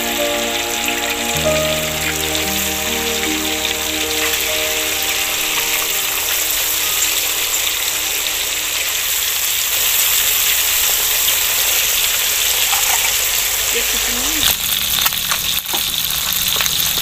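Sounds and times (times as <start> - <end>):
background music: 0.0 - 9.6
steady hiss: 0.0 - 15.0.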